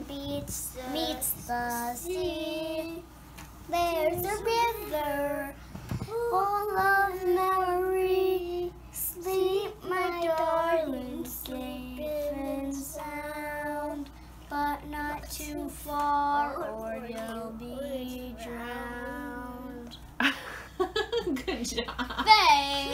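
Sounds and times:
child singing: 0.0 - 3.1, 3.7 - 20.0.

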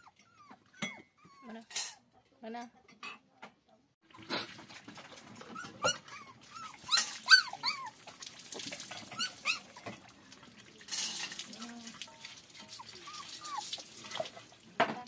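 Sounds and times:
puppies whining and yelping: 0.0 - 1.6, 5.3 - 8.2, 9.0 - 9.9, 12.6 - 14.4.

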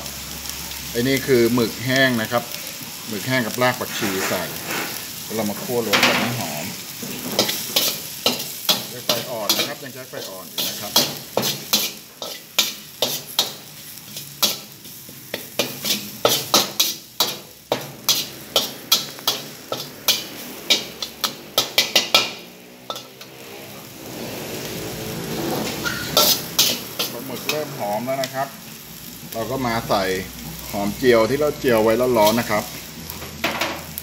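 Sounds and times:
food sizzling in oil: 0.0 - 34.0
ladle scraping and clanking wok: 3.0 - 28.4.

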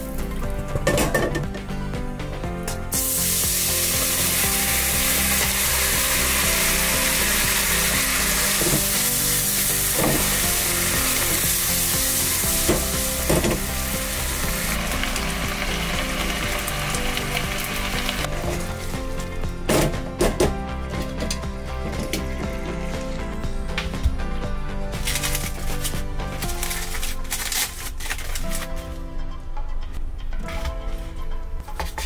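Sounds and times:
sauce sizzling in a frying pan: 2.9 - 18.3.

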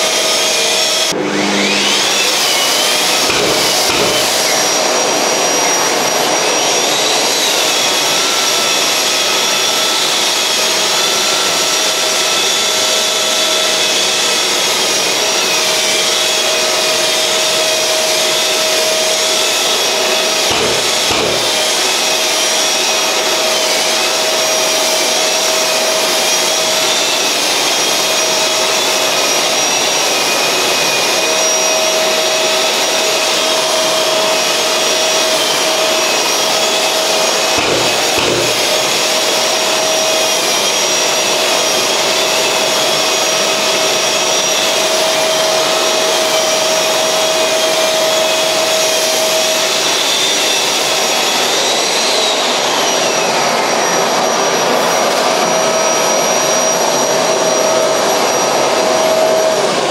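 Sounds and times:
dust extractor sucking: 0.0 - 6.3, 13.5 - 23.9, 32.4 - 42.5
drywall sander running: 0.0 - 59.9.

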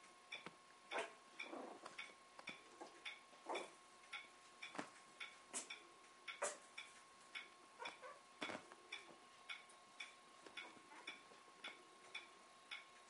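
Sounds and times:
clock ticking: 0.0 - 13.0
faint steady whine: 0.0 - 13.0.

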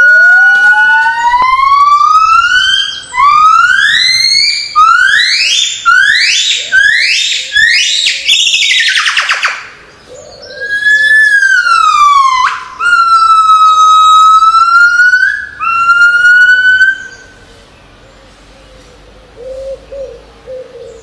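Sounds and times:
gibbon whooping call: 0.0 - 9.6, 10.4 - 17.3.

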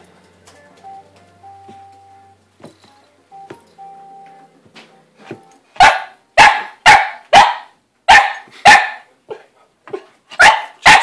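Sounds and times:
small dog barking: 5.8 - 9.1, 10.4 - 11.0.

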